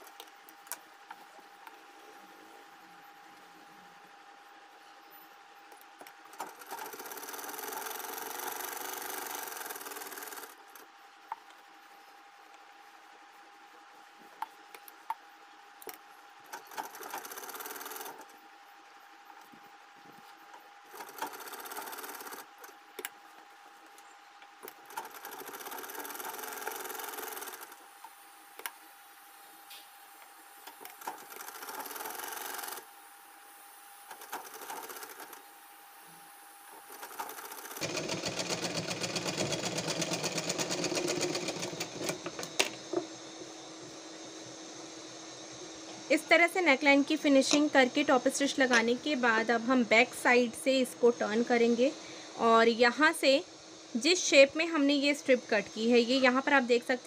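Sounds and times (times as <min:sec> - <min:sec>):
sewing machine stitching: 0:06.3 - 0:10.8, 0:16.5 - 0:18.3, 0:20.9 - 0:22.7, 0:24.7 - 0:27.8, 0:30.8 - 0:32.9, 0:34.1 - 0:35.4, 0:36.8 - 0:42.7.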